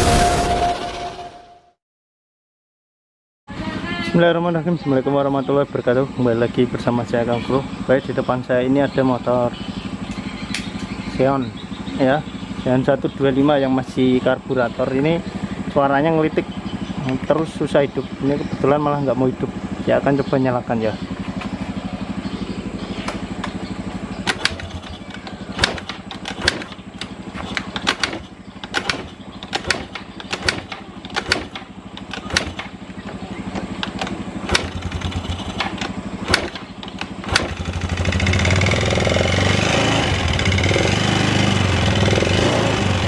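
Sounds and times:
scooter engine running unevenly: 3.5 - 43.0
sharp engine knocks: 22.8 - 39.2.

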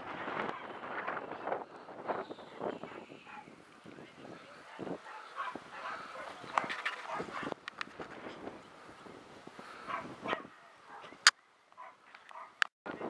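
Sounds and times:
dogs barking: 2.8 - 3.6, 4.6 - 7.6, 9.8 - 11.2, 11.8 - 12.6.

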